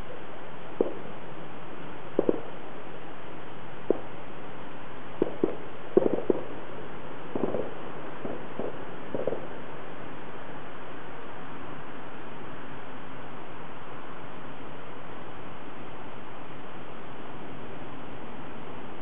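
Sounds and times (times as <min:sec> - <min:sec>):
distant fireworks pops and thuds: 0:00.0 - 0:01.2, 0:02.1 - 0:02.6, 0:03.8 - 0:04.2, 0:05.1 - 0:06.7, 0:07.3 - 0:09.8
steady hiss: 0:00.0 - 0:19.0.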